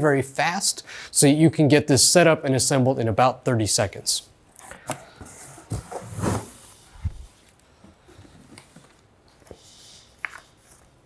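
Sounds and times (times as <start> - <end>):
cardboard flaps scraping: 5.4 - 7.5.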